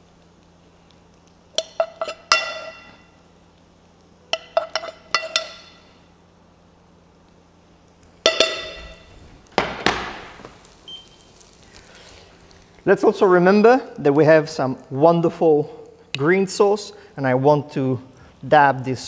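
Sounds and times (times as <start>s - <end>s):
metal spoon clinking on pan: 1.6s - 3.1s, 4.3s - 5.8s, 8.2s - 8.9s
pan knocking down: 8.3s - 10.4s.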